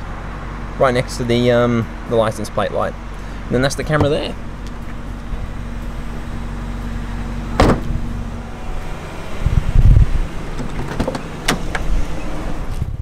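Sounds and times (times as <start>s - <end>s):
car door latch click: 7.6s - 8.0s, 10.5s - 11.9s.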